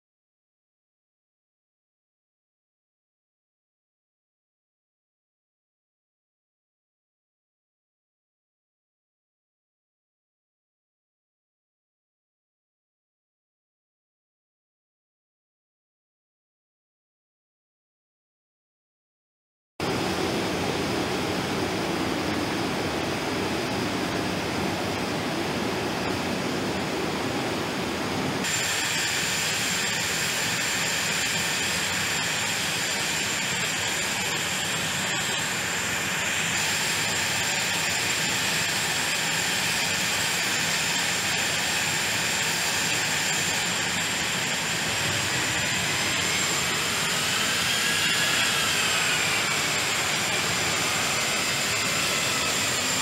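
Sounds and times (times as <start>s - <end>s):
jet engines running: 19.8s - 53.0s
whining tone rising and falling: 41.1s - 53.0s.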